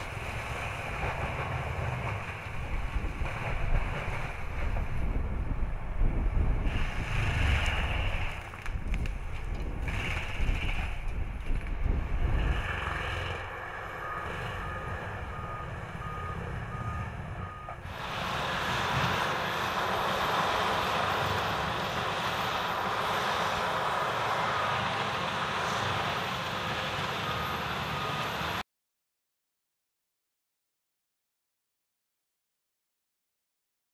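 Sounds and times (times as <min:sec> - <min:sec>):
tractor engine rumble: 0:00.0 - 0:28.6
backup alarm beeping: 0:14.0 - 0:17.9.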